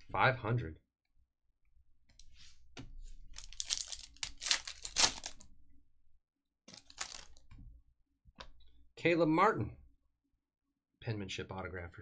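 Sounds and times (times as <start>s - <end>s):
foil wrapper tearing and crinkling: 3.4s - 5.4s, 6.7s - 7.4s.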